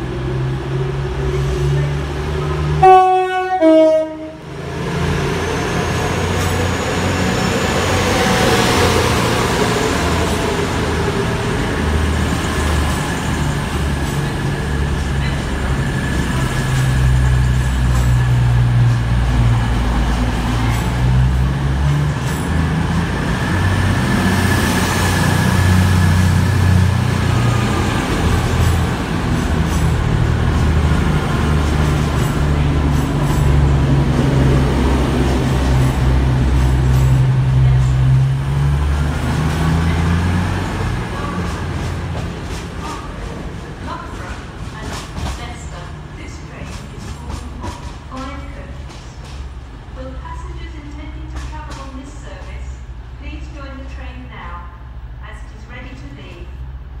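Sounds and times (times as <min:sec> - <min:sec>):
diesel engines droning: 0:00.0 - 0:57.0
loud two-tone train horn: 0:02.8 - 0:04.5.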